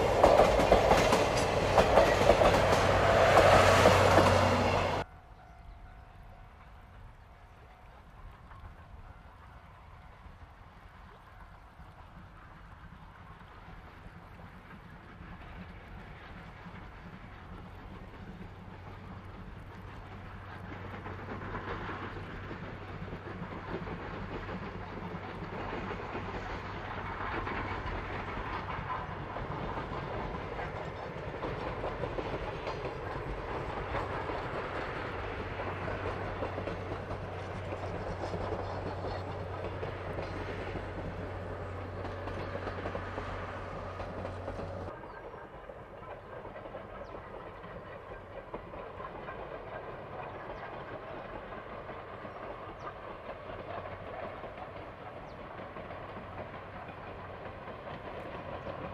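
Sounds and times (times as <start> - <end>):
wheels clattering over rail joints: 0.0 - 5.1, 14.6 - 45.3
steam train passing: 0.0 - 58.9.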